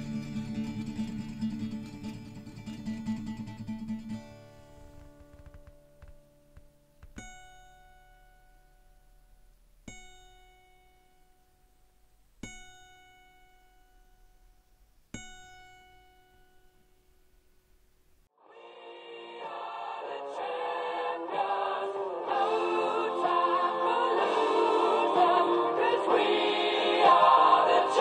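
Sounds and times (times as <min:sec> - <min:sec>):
acoustic guitar strumming: 0:00.0 - 0:17.6
plucked guitar notes: 0:07.1 - 0:11.6, 0:12.4 - 0:14.5, 0:15.1 - 0:17.1.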